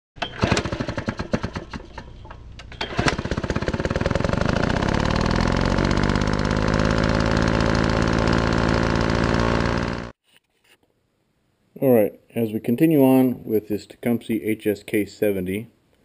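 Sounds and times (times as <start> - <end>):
engine sputtering and running: 0.2 - 10.2.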